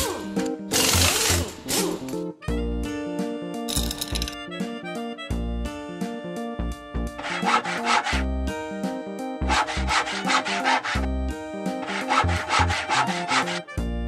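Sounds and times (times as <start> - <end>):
background music: 0.0 - 14.0
saw strokes: 0.7 - 2.1, 7.2 - 8.3, 9.4 - 11.1, 11.7 - 13.8.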